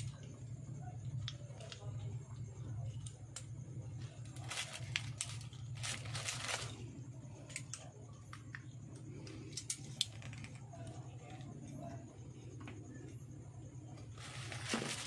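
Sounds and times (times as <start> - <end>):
low hum: 0.0 - 15.0
rustling of wire: 4.0 - 7.8, 13.9 - 15.0.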